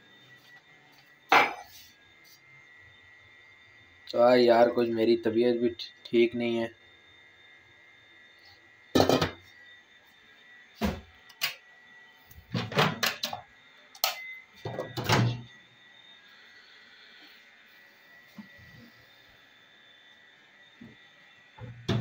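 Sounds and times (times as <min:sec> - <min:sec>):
knocks and clatters on counter: 0:09.0 - 0:09.4.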